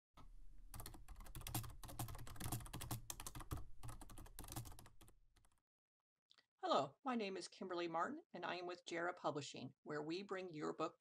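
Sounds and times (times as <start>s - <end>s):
rapid keyboard typing: 0.7s - 5.6s.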